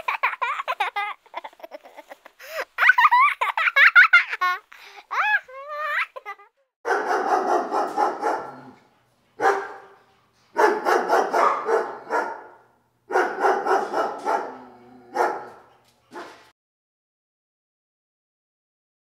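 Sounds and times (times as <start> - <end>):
dog barking: 6.8 - 8.8, 9.4 - 10.0, 10.6 - 16.5.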